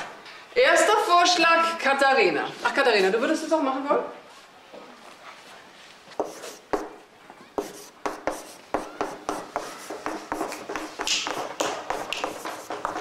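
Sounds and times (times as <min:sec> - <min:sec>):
chalk tapping and scratching: 0:06.1 - 0:07.0, 0:07.6 - 0:13.0
chalk scraping high: 0:06.2 - 0:06.9, 0:07.6 - 0:13.0.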